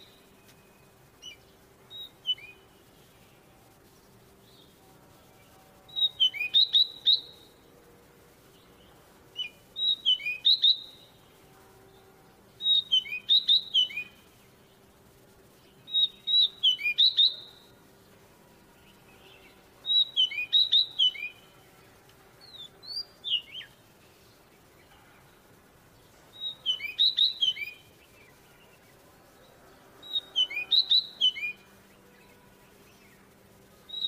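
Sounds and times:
bird singing whistled notes: 0.0 - 3.5, 5.4 - 7.7, 8.6 - 11.3, 11.9 - 14.8, 15.6 - 17.8, 18.8 - 21.7, 22.4 - 24.9, 26.3 - 29.0, 30.0 - 34.0.

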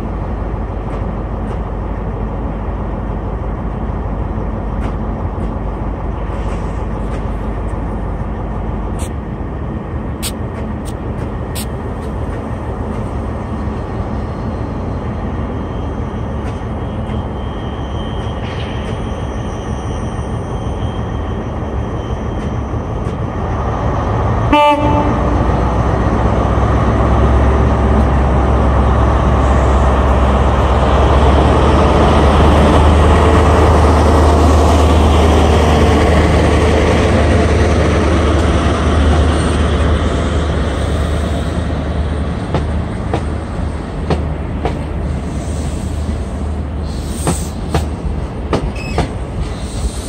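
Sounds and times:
diesel train engine rumble: 0.0 - 50.0
train horn toot: 24.5 - 25.5.

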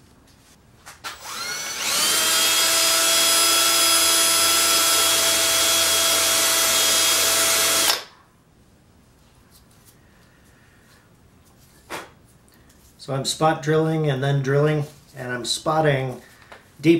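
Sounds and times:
cordless drill drilling: 1.1 - 8.1.

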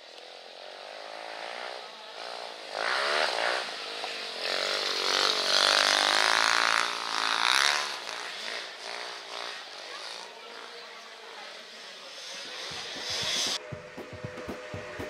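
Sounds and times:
racing engine revving hard: 0.6 - 10.6.

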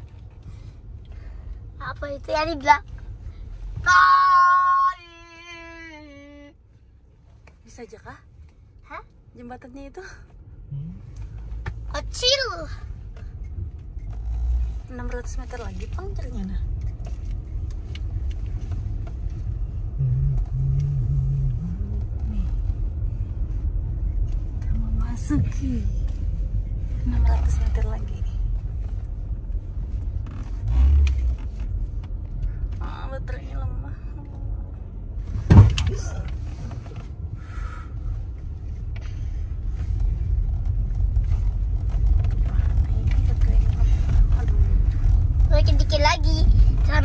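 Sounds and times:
car engine and tyres rumbling: 0.0 - 47.0
low held tone: 20.0 - 22.4.

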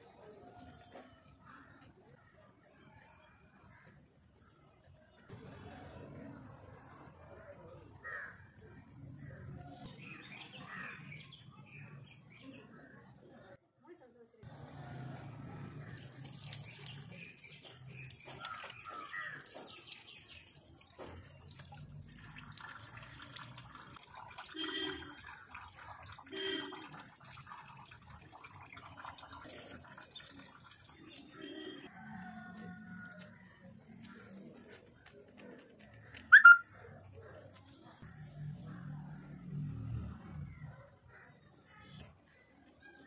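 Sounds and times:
water splashing on stone: 15.8 - 31.8
bird chirping: 36.1 - 36.9.

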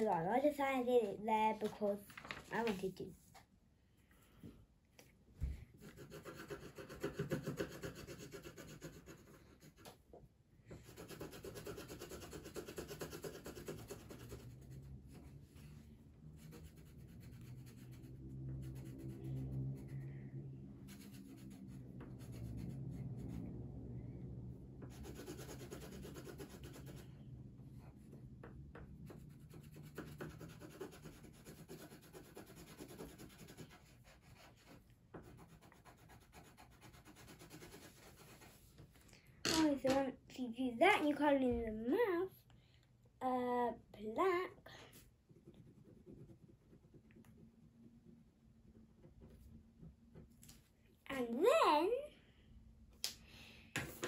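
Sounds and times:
pencil rubbing on paper: 5.8 - 10.0, 10.8 - 20.0, 20.8 - 23.4, 24.9 - 27.1, 29.0 - 38.8, 44.9 - 47.5
low hum: 14.3 - 25.9.

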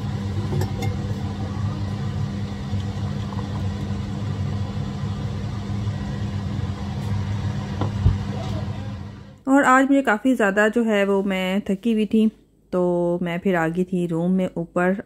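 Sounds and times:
low hum and rumble: 0.0 - 9.4
tea pouring into a mug: 1.9 - 4.8.

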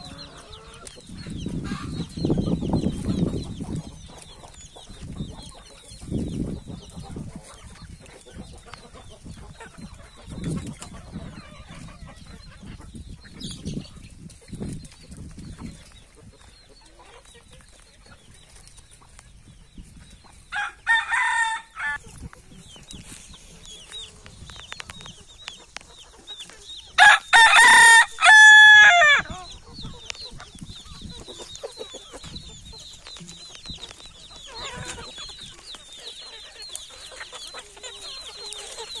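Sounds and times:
hens clucking softly: 0.0 - 20.8, 29.2 - 39.0
rooster crowing: 20.6 - 22.0, 27.0 - 29.3.

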